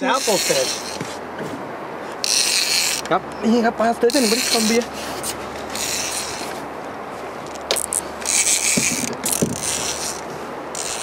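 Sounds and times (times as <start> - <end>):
fishing reel whirring: 0.1 - 1.0, 2.2 - 3.1, 4.1 - 6.6, 7.5 - 11.0.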